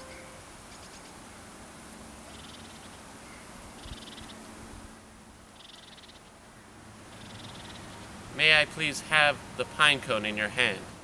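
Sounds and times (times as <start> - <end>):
animal calling with high trills: 0.0 - 1.0, 7.1 - 8.0
faint outdoor hiss: 0.0 - 11.0.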